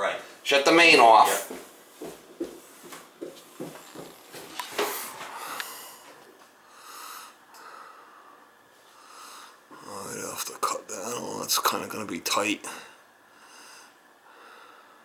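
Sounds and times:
man breathing heavily: 2.4s - 9.9s, 12.7s - 15.0s.

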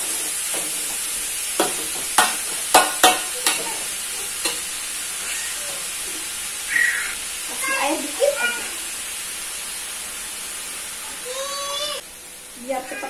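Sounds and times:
food sizzling in a pan: 0.0s - 13.0s
spatula knocking on pan: 0.5s - 4.7s.

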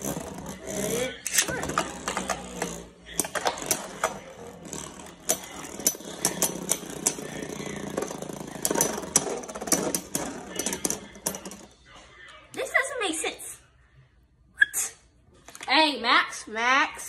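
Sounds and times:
spinning tops whirring: 0.0s - 11.7s.

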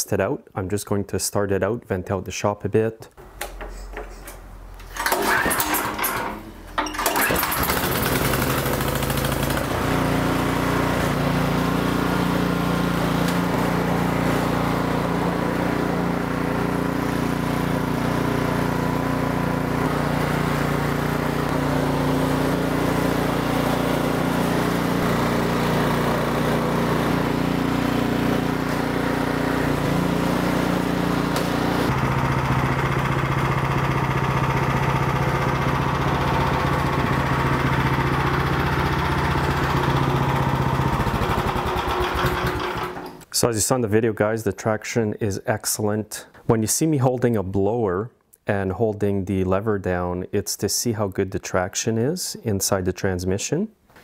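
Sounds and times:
snowblower engine starting and running: 4.8s - 43.3s.

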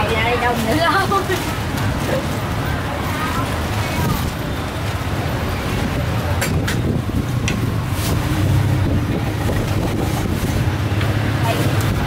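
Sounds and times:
low engine rumble: 3.1s - 12.0s.

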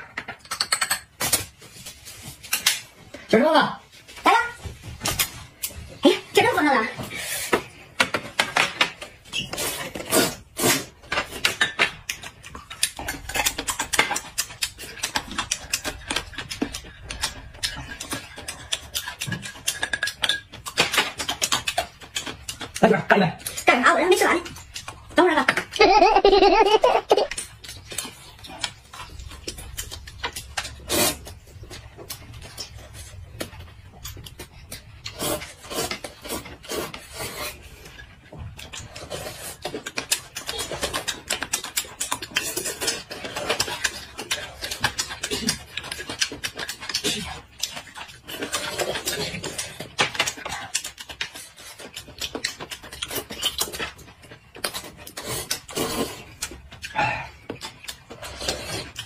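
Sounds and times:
chopsticks and spoon against dishes: 0.0s - 59.0s
people chewing and slurping noodles: 0.0s - 59.0s.

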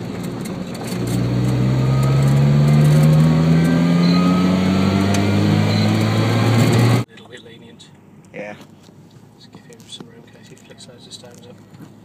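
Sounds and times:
car engine accelerating: 0.0s - 7.1s.

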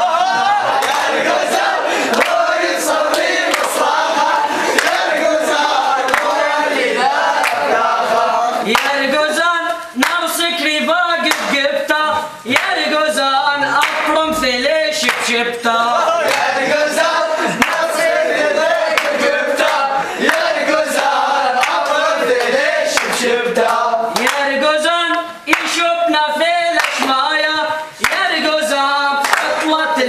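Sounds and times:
hand claps: 0.0s - 3.9s, 4.7s - 6.4s, 7.4s - 7.7s, 8.7s - 10.4s, 11.2s - 11.8s, 12.5s - 13.0s, 13.8s - 15.4s, 16.2s - 16.5s, 17.5s - 18.2s, 18.8s - 25.9s, 26.7s - 27.2s, 28.0s - 30.0s
men singing together: 0.0s - 30.0s.

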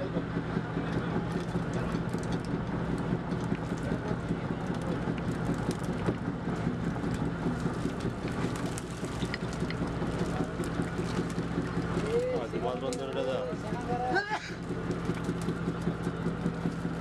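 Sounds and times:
boat engine running: 0.0s - 17.0s
fish flapping on deck: 3.2s - 13.2s.

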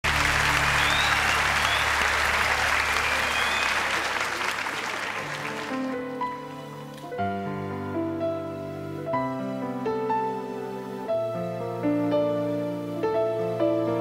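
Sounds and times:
studio audience applauding: 0.0s - 7.1s
slow instrumental music: 5.2s - 14.0s.

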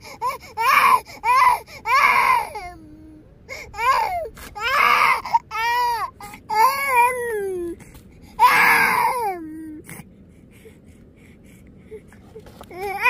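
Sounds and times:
small child crying: 0.6s - 3.1s, 3.8s - 7.8s, 8.4s - 9.7s.

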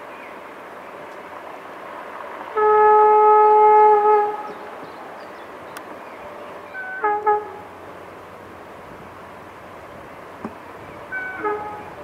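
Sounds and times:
locomotive horn blasts: 2.6s - 4.6s, 6.7s - 7.7s, 10.9s - 12.0s.

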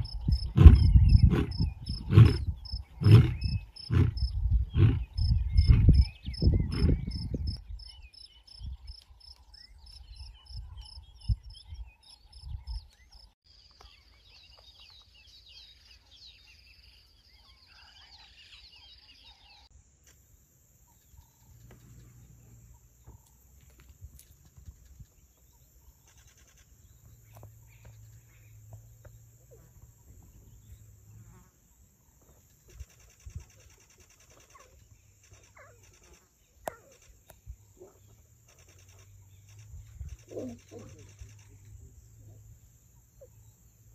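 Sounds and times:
insects chirping: 0.0s - 43.9s
lion roaring: 0.6s - 5.8s.

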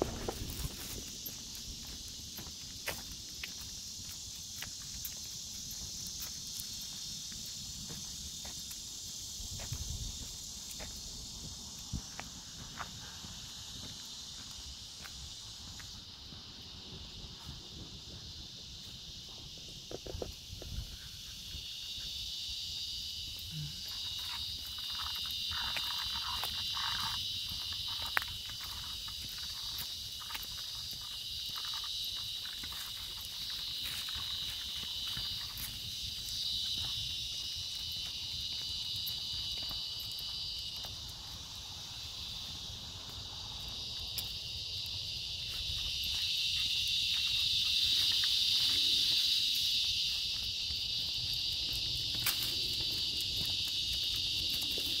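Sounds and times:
crickets chirping: 0.0s - 55.0s
footsteps and handling clicks: 45.5s - 55.0s.

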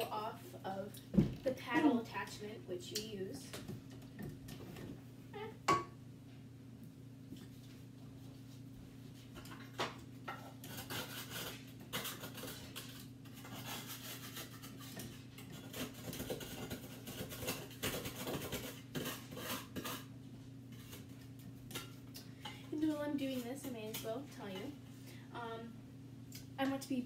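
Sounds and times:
spatula scraping dough: 10.3s - 21.5s, 23.0s - 24.7s.

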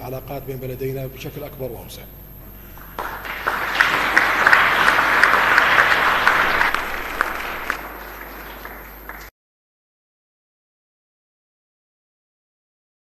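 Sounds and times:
audience applauding: 2.7s - 9.3s.

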